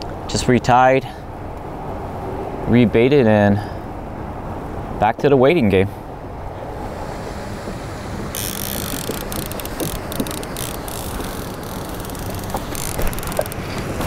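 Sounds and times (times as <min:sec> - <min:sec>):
hiss with faint crackles: 0:06.7 - 0:14.0
wind noise on microphone: 0:06.8 - 0:14.0.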